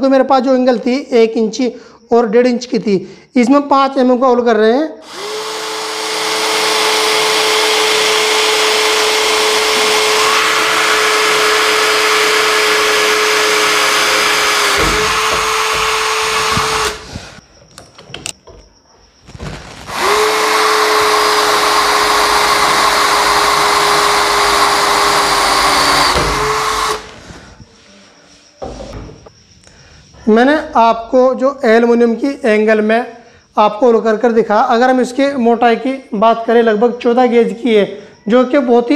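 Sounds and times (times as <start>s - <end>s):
cordless drill drilling aluminium: 5.0s - 17.4s, 19.8s - 27.4s.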